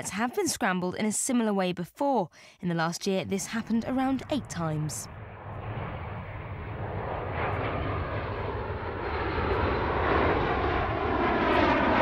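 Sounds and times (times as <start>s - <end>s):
jets flying past: 3.5s - 12.0s
jet whine sliding down: 3.6s - 12.0s.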